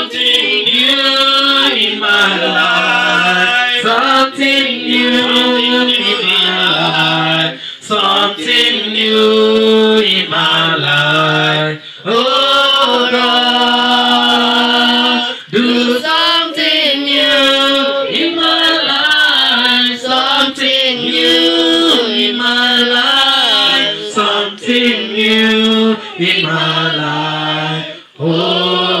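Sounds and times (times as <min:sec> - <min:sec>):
men singing into microphones: 0:00.0 - 0:29.0
singers breathing: 0:07.5 - 0:07.9, 0:11.8 - 0:12.1, 0:15.3 - 0:15.6, 0:27.9 - 0:28.2.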